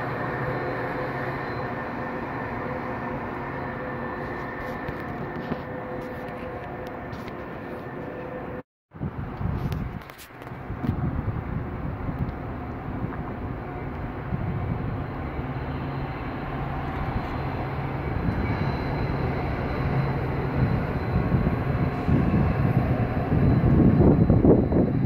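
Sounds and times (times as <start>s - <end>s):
diesel locomotive engine droning: 0.0s - 25.0s.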